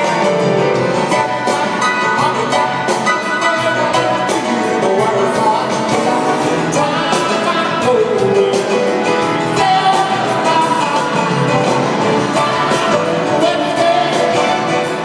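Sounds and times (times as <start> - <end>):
drums beat: 0.0 - 15.0
live pop-rock band: 0.0 - 15.0
man singing: 1.0 - 15.0.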